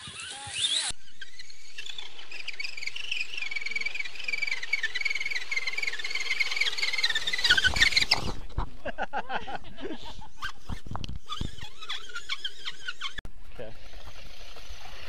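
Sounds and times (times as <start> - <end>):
electric motor whining: 0.0 - 8.5.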